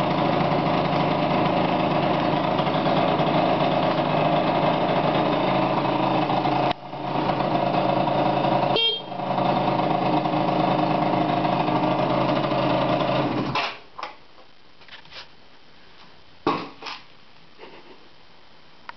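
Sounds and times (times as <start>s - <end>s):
scooter engine running: 0.0s - 13.6s.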